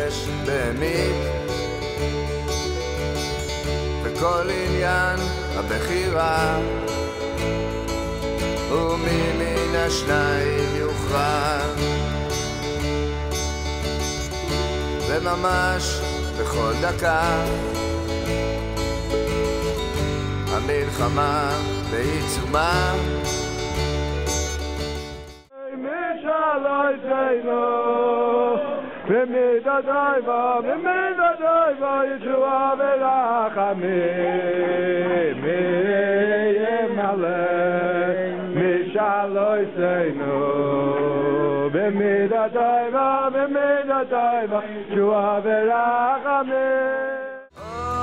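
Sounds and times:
men singing a chant: 8.7s - 11.8s, 25.6s - 48.0s.

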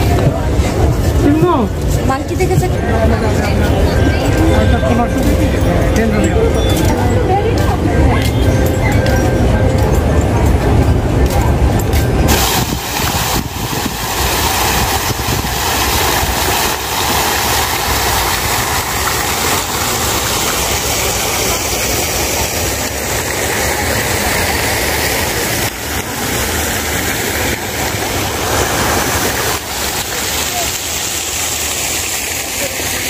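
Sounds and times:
fountain spray into basin: 12.1s - 33.0s.

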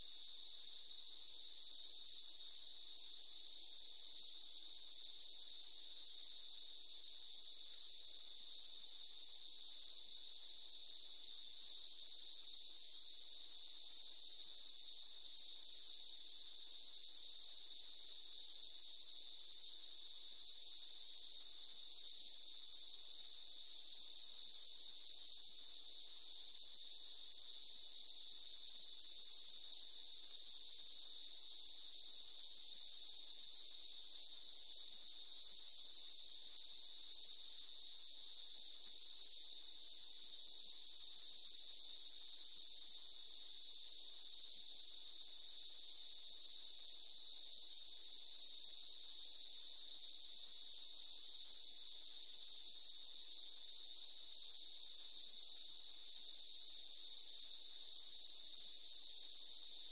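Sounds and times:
insect chorus drone: 0.0s - 59.9s.

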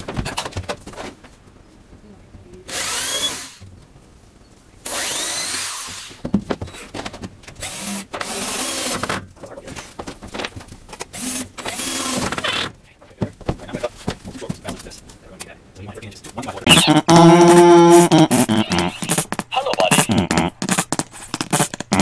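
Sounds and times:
power drill running: 2.7s - 3.6s, 4.8s - 6.8s, 7.6s - 9.2s, 11.1s - 12.7s
knocks and handling sounds: 5.9s - 8.3s, 9.0s - 15.5s.

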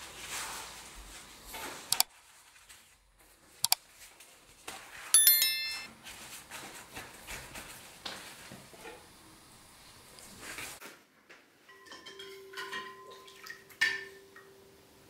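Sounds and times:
bright ringing clink: 5.2s - 5.9s.

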